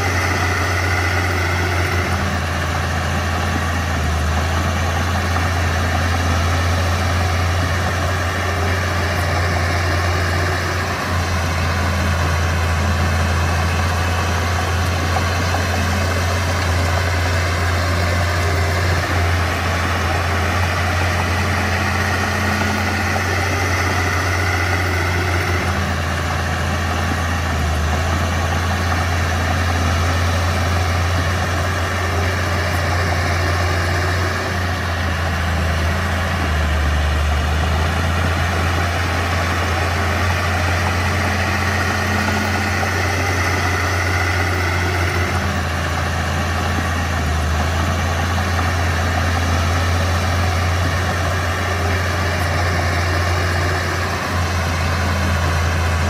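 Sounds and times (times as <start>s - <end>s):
bulldozer diesel engine running: 0.0s - 56.0s.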